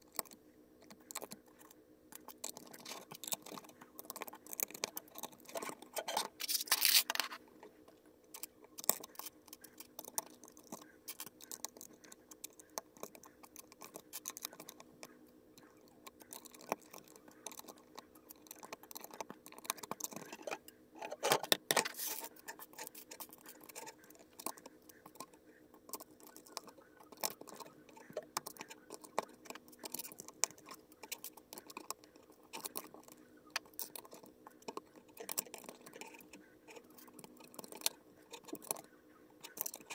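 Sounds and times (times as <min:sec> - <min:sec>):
faint steady hum: 0:00.0 - 0:39.9
plastic bricks rattling: 0:05.5 - 0:07.4, 0:20.0 - 0:22.3
plastic bricks clicking and tapping: 0:16.0 - 0:38.8.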